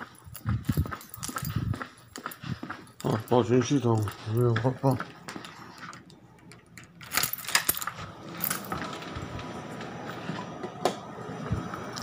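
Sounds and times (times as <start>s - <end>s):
keys jangling: 0.0s - 4.6s, 6.4s - 9.2s.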